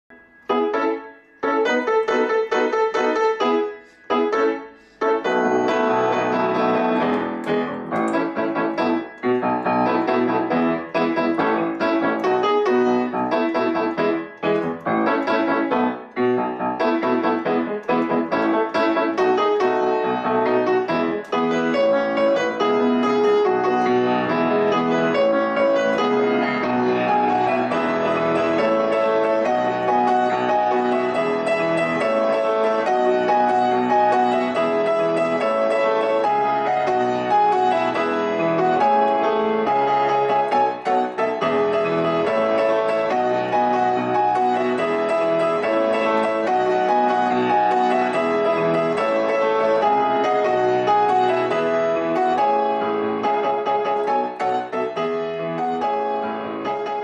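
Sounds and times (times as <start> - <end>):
piano music: 0.1 - 57.0.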